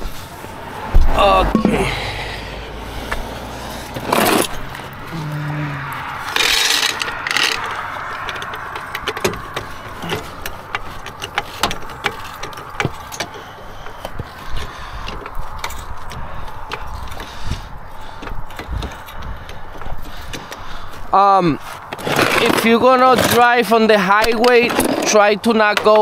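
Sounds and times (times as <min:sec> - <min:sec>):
metal tools clicking and clanking: 0:06.2 - 0:17.3.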